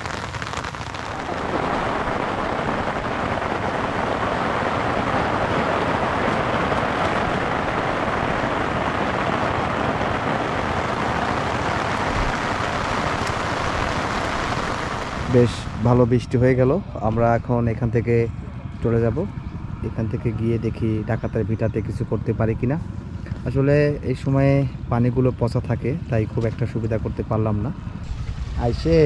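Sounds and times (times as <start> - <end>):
heavy rain on an umbrella: 0.0 - 15.9.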